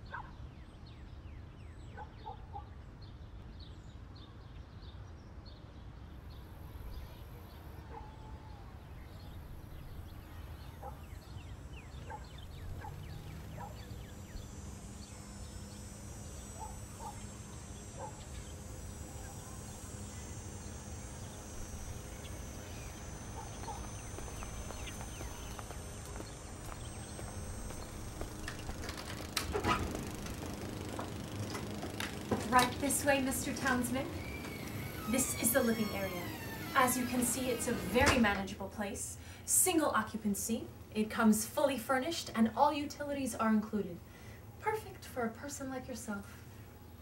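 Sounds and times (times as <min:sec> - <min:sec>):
birds chirping: 0:00.0 - 0:38.6
low hum: 0:06.0 - 0:39.4
steady low rumble: 0:11.2 - 0:37.9
high-pitched hiss: 0:12.5 - 0:38.6.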